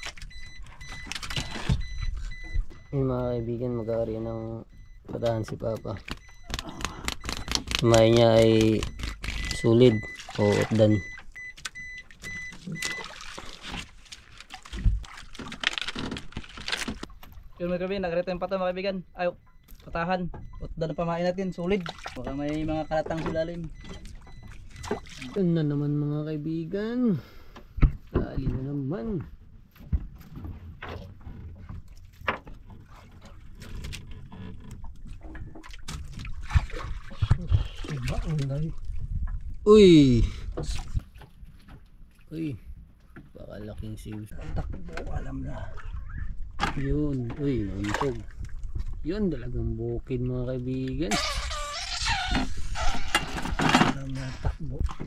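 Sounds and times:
water sloshing against boat: 0:00.0 - 0:26.5, 0:27.4 - 0:55.0
wind and water rumble: 0:27.7 - 0:51.0.

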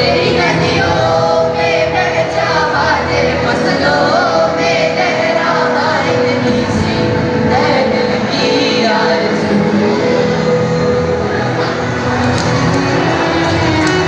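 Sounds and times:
group singing with music: 0:00.0 - 0:14.0.

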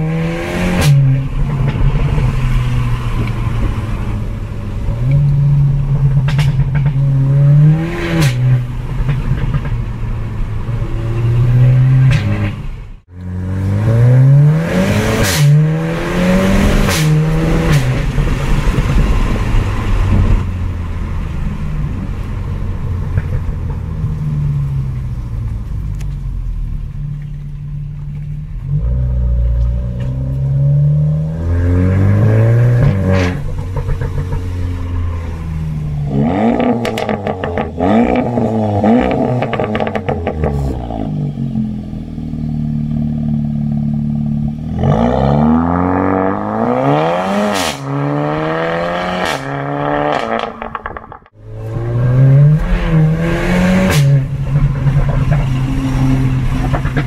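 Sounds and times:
car engine accelerating: 0:00.0 - 0:57.0
exhaust crackles and pops: 0:21.8 - 0:30.4, 0:32.8 - 0:41.2, 0:50.1 - 0:51.4, 0:53.7 - 0:57.0.

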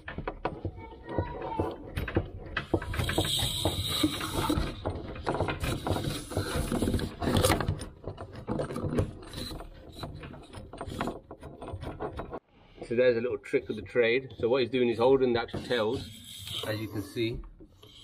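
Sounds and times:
spanner clicking and scraping: 0:01.9 - 0:12.4, 0:15.4 - 0:18.0.

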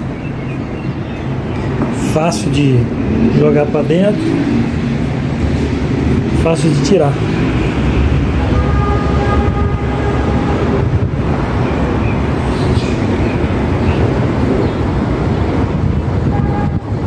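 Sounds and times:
street traffic noise: 0:00.0 - 0:17.0.

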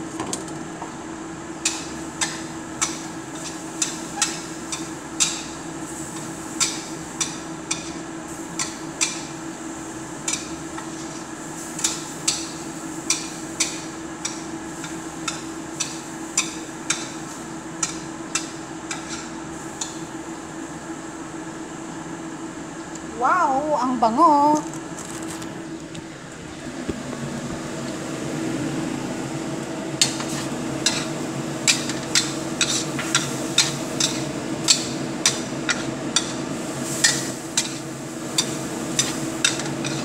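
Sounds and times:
steady hum: 0:00.0 - 0:40.0
spatula clanking against a wok: 0:38.4 - 0:40.0.

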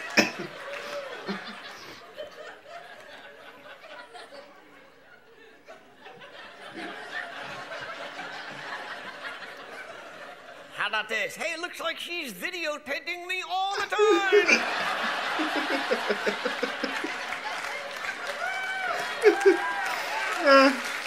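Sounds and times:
man laughing: 0:13.6 - 0:17.3, 0:19.0 - 0:20.9.

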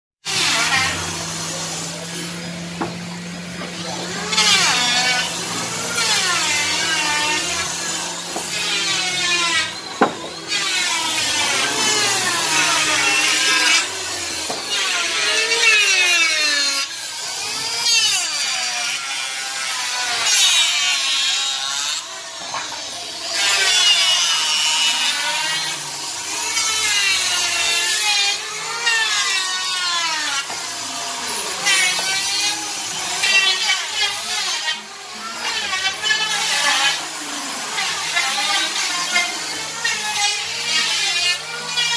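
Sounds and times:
woodworking power tools whining: 0:00.2 - 0:41.9
steady motor hum: 0:00.3 - 0:17.8.

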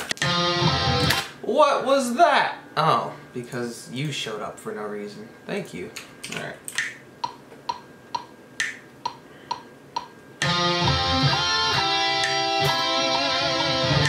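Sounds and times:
metal music with distorted guitars: 0:00.0 - 0:01.3, 0:10.4 - 0:14.0
metronome clicks: 0:06.7 - 0:10.8, 0:11.7 - 0:13.1.

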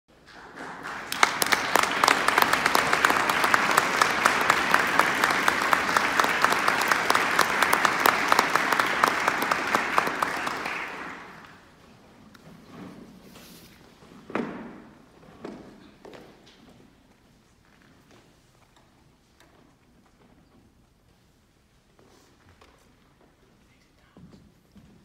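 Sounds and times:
audience applauding: 0:00.1 - 0:11.7
sharp close claps: 0:00.2 - 0:11.6.

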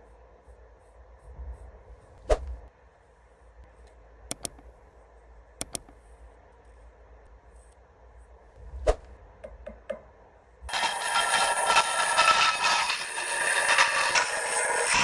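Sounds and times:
mouse click sound effects: 0:04.3 - 0:04.7, 0:05.6 - 0:06.0.

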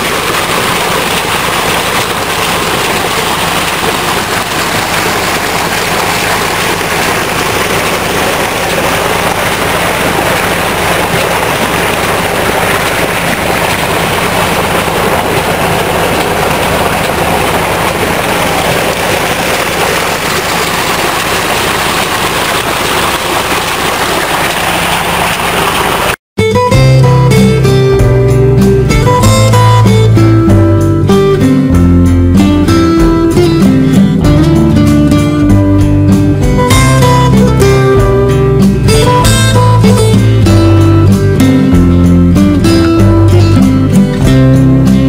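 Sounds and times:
motor humming and rushing: 0:00.0 - 0:26.2.

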